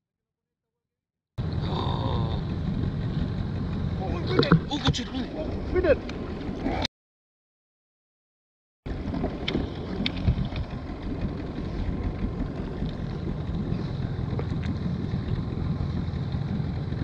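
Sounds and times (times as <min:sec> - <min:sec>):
water noise: 0:01.4 - 0:06.9, 0:08.9 - 0:17.0
wind rumbling on microphone: 0:01.4 - 0:06.9, 0:08.9 - 0:17.0.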